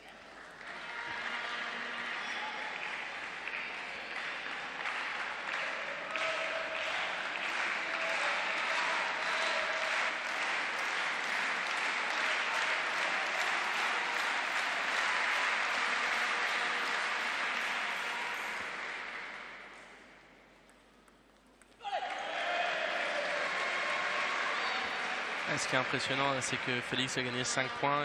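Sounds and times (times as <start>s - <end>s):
spectators applauding: 0.0s - 19.8s, 21.8s - 28.0s.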